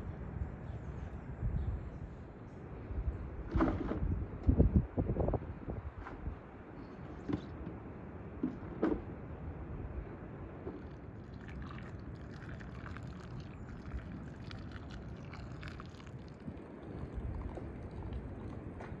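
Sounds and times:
water pouring into bowl: 0:10.9 - 0:18.6.

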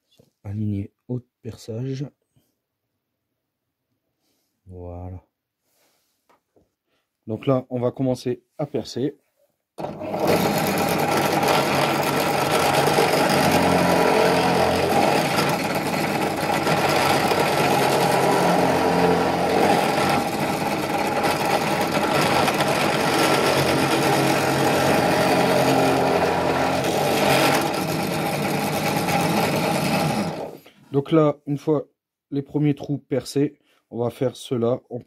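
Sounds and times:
drill bit boring into wood: 0:09.8 - 0:30.6
drill press motor running: 0:09.8 - 0:30.6.

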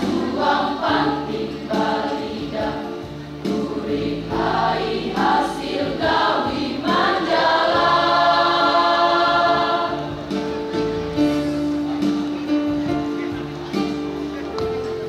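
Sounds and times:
choir singing: 0:00.0 - 0:10.4.

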